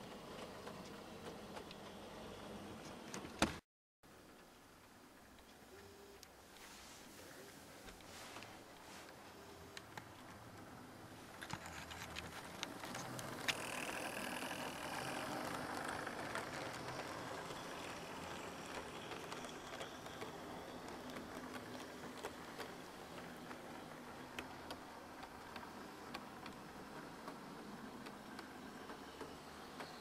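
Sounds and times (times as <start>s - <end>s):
model train rattling hum: 10.6s - 30.0s
wheels clicking over rail joints: 11.3s - 30.0s.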